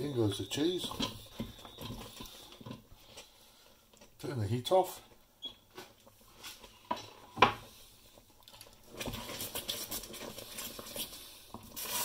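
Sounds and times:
wooden spoon stirring in saucepan: 0:00.0 - 0:05.2, 0:05.8 - 0:12.0.

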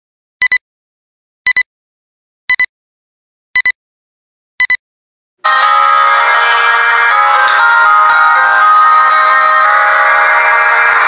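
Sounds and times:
high double beeps: 0:00.4 - 0:00.6, 0:01.5 - 0:01.7, 0:02.5 - 0:02.7, 0:03.6 - 0:03.8, 0:04.6 - 0:04.8.

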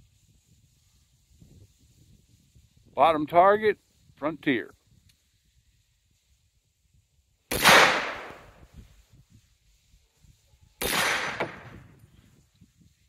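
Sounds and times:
rifle gunshots: 0:07.5 - 0:08.5, 0:10.8 - 0:11.8.

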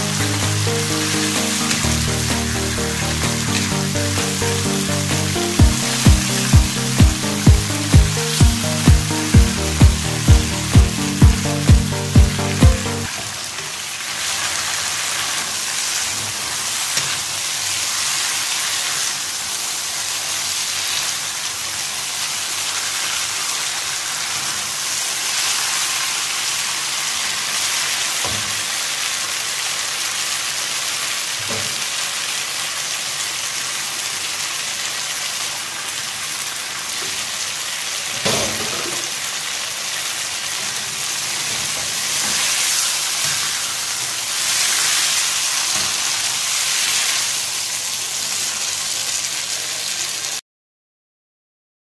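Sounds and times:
chicken wings sizzling in sauce: 0:13.2 - 0:50.4.

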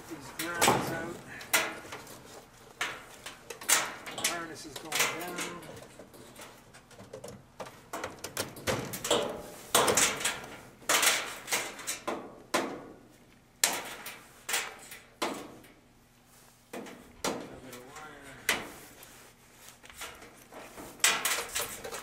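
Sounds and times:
sheet metal clanks and rattles: 0:00.1 - 0:12.9, 0:20.0 - 0:22.0.

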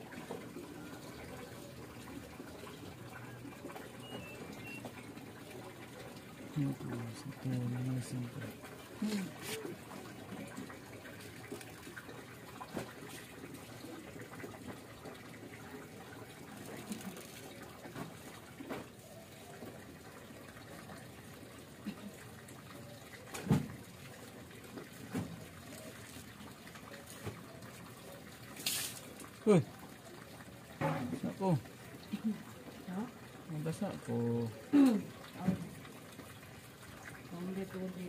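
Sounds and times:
cloth rubbing on wheel hub: 0:09.1 - 0:09.7.

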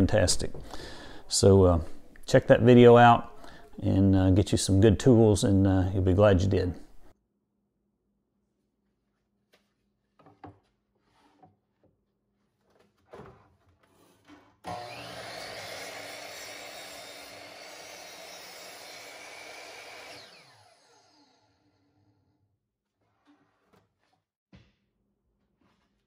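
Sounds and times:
miter saw cutting plywood: 0:14.6 - 0:22.0
saw blade winding down: 0:14.7 - 0:22.0.

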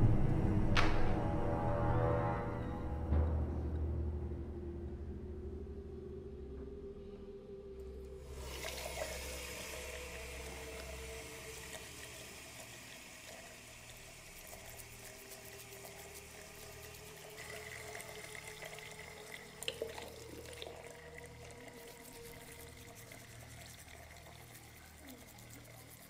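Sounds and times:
tap water running into basin: 0:08.3 - 0:26.0.

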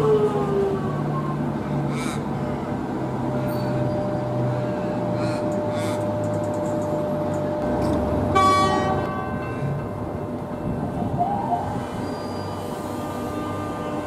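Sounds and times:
electric train humming: 0:00.0 - 0:14.0
train horn toot: 0:08.3 - 0:09.4, 0:11.8 - 0:14.0.

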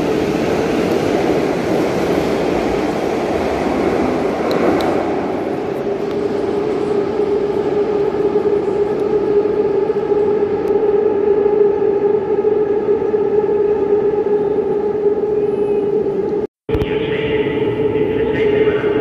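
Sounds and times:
train rumble: 0:00.0 - 0:19.0
train whine: 0:00.0 - 0:19.0.

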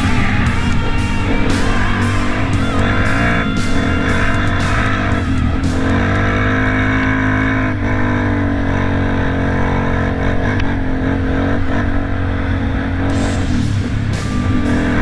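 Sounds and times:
guitar music: 0:00.0 - 0:08.3, 0:13.0 - 0:15.0
dirt bike engine running: 0:00.0 - 0:15.0.

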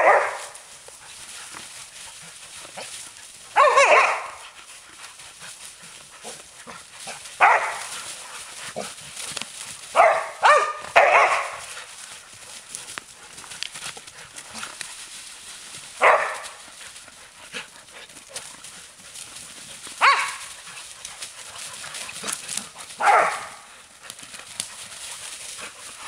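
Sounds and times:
dogs barking: 0:00.0 - 0:00.7, 0:02.8 - 0:04.8, 0:06.2 - 0:12.1, 0:16.0 - 0:16.8, 0:19.9 - 0:23.9
dry leaves rustling: 0:00.0 - 0:26.0.

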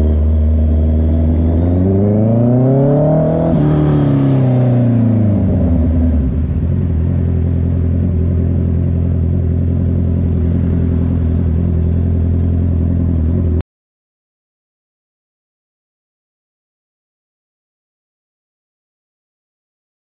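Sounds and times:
motorcycle engine through loud exhaust: 0:00.0 - 0:13.6.

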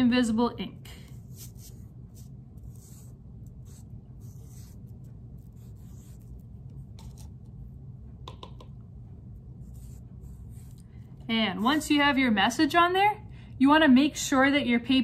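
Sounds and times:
steady low hum: 0:00.0 - 0:15.0
cotton swab brushing paper: 0:01.1 - 0:07.4, 0:09.6 - 0:12.1
swab tapping plastic cup: 0:08.2 - 0:08.8.

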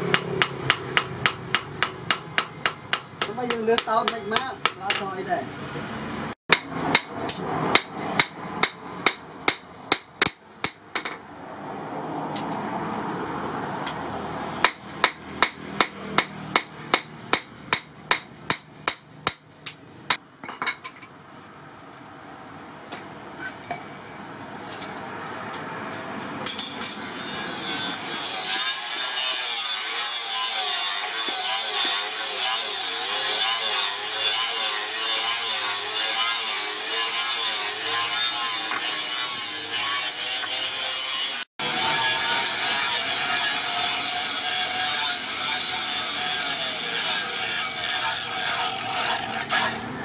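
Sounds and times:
hammer striking blade on anvil: 0:26.4 - 0:29.5
angle grinder grinding: 0:26.5 - 0:50.0.

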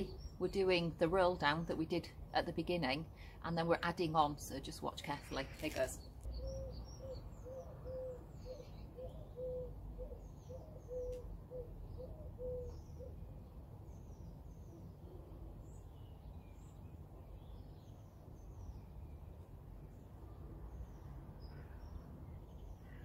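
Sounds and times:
small birds chirping: 0:00.0 - 0:03.4, 0:04.0 - 0:23.0
pigeon cooing: 0:06.3 - 0:13.2.

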